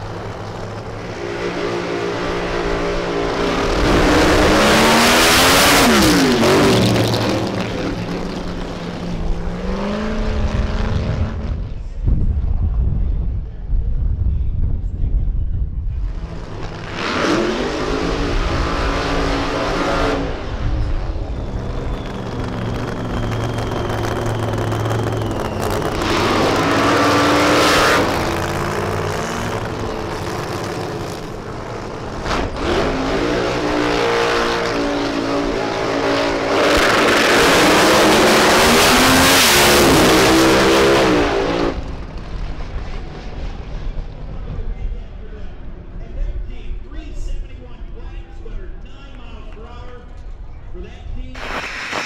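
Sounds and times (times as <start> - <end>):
race car engine revving: 0.0 - 11.7, 16.1 - 44.0.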